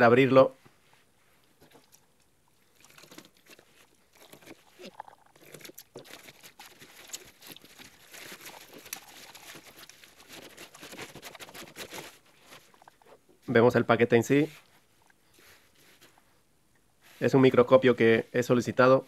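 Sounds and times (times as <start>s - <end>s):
plastic bag crinkling and tearing: 4.2s - 13.0s.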